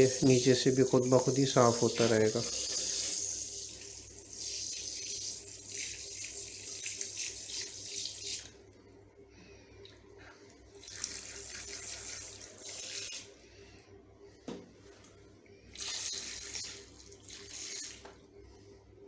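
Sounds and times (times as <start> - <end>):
shower sprayer spraying water: 0.0 - 8.5, 10.8 - 13.3, 15.7 - 18.1.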